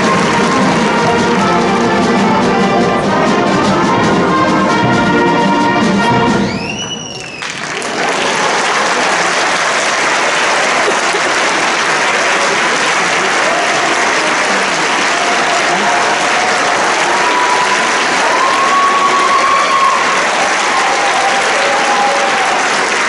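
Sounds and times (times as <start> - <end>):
audience applause: 0.0 - 2.1, 6.6 - 23.0
concert band brass chord: 0.0 - 6.5
whistled note bending: 6.4 - 7.6.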